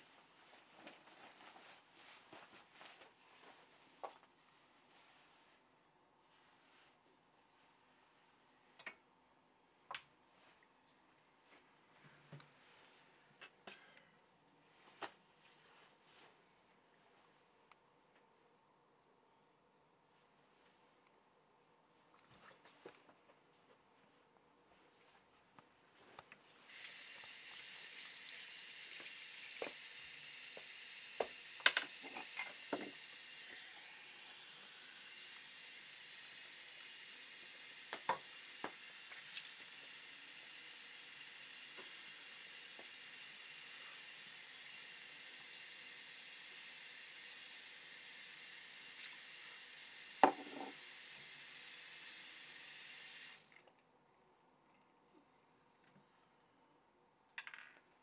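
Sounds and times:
water running from a tap: 26.7 - 53.6.

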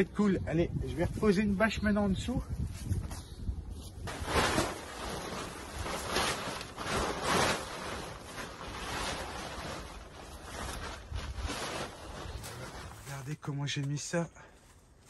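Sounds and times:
tarp rustling and crinkling: 3.7 - 13.4.

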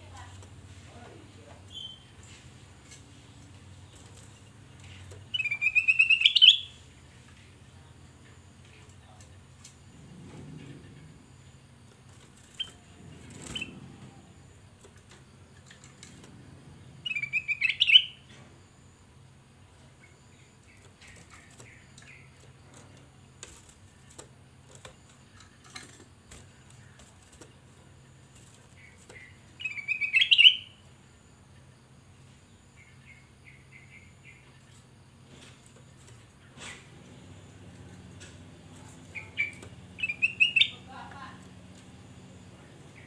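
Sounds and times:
bird whistling song: 1.7 - 2.1, 5.3 - 6.8, 17.0 - 18.3, 29.2 - 30.8, 39.1 - 40.8.

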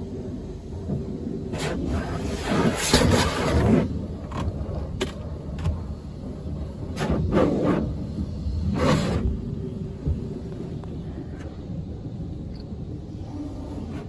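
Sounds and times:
steady low rumble: 0.0 - 14.0
pressure washer spray hiss: 5.8 - 10.5.

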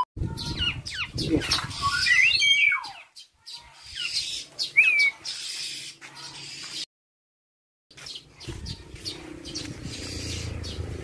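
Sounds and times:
bird chirping and whistling: 0.4 - 3.3, 3.9 - 6.6.

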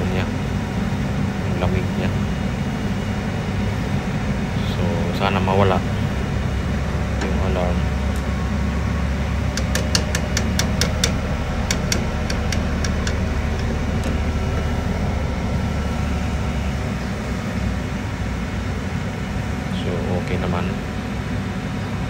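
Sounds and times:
low machinery hum: 0.0 - 22.0
sharp ticks: 9.6 - 14.2.

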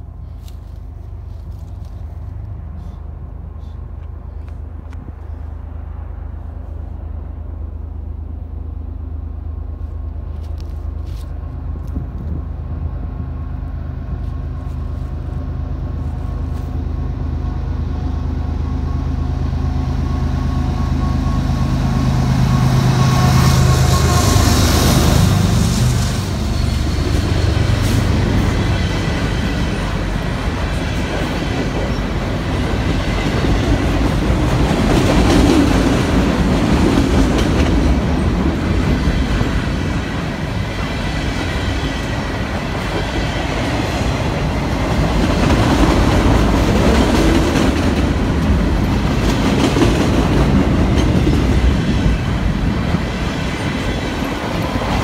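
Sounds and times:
diesel locomotive engine drone: 0.0 - 55.0
train wheels rushing on rail: 9.2 - 55.0
freight cars rolling past: 12.5 - 55.0.

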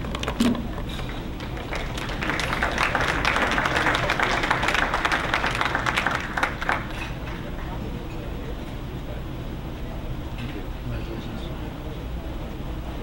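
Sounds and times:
audience applauding: 1.1 - 7.4.

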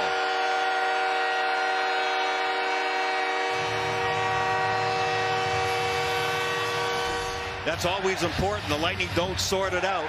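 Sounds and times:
goal horn blaring: 0.0 - 9.0
crowd cheering: 3.6 - 10.0.

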